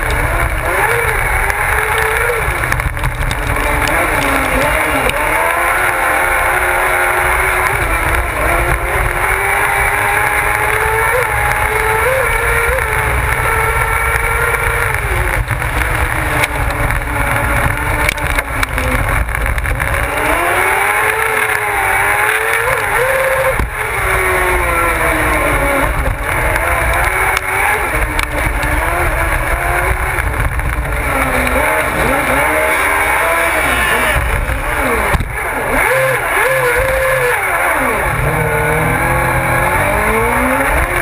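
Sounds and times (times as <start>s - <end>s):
low rumble: 0.0s - 21.0s
buggy engine racing: 0.0s - 41.0s.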